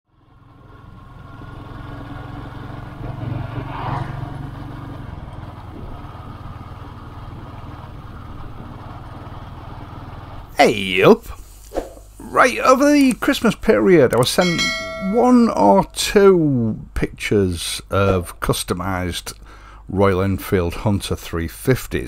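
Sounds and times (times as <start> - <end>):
motorcycle engine riding along: 0.1 - 10.6.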